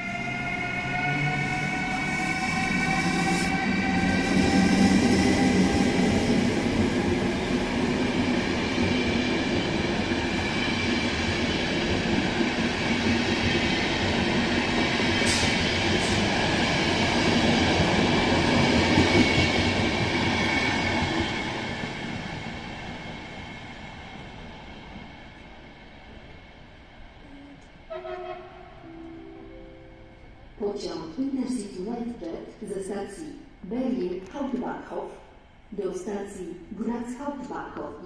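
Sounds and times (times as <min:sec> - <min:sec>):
locomotive whine: 0:00.0 - 0:09.2
train rumbling past: 0:00.0 - 0:32.6.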